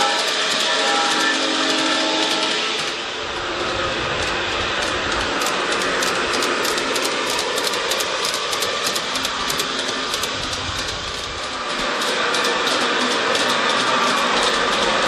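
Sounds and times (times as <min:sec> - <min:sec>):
model train wheels clicking: 0:00.0 - 0:15.0.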